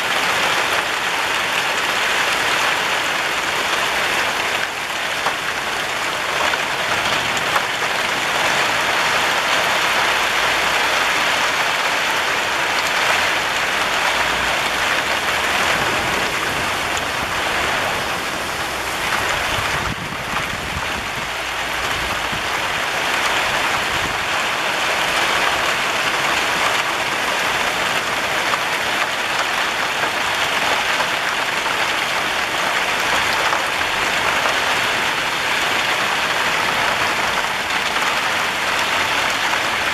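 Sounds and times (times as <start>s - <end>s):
rain on tile roofs: 0.0s - 39.9s
low rumble: 14.5s - 21.3s.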